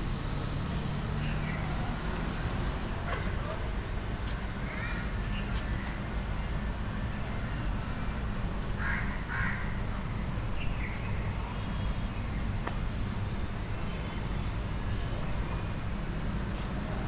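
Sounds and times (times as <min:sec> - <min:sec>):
low street rumble: 0:00.0 - 0:17.0
crow cawing: 0:08.8 - 0:09.7.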